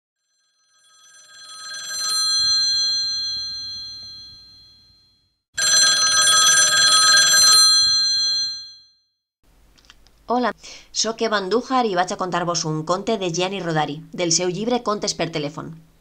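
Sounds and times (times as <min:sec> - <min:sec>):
telephone bell ringing: 0:00.2 - 0:09.1.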